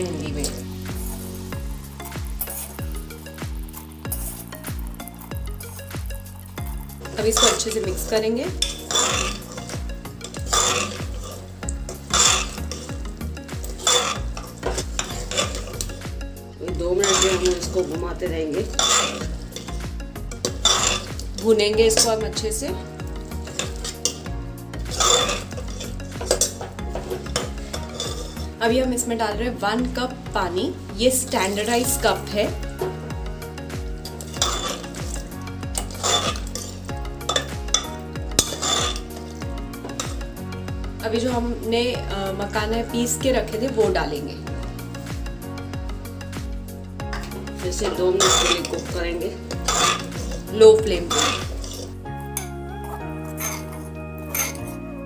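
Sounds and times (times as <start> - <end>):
metal spoon scraping a pot: 0.0 - 16.1, 16.7 - 28.6, 33.6 - 40.5, 47.0 - 52.5, 53.3 - 54.8
background music with steady beat: 0.0 - 55.0
ladle clinking against pot: 8.6 - 13.0, 35.8 - 40.2, 47.1 - 48.9, 49.5 - 51.9.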